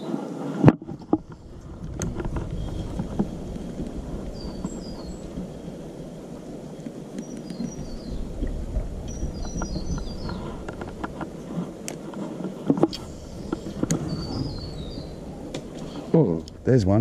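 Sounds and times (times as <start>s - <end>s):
bird chirping: 4.2s - 5.7s, 7.2s - 8.3s, 9.0s - 10.6s, 12.9s - 16.8s.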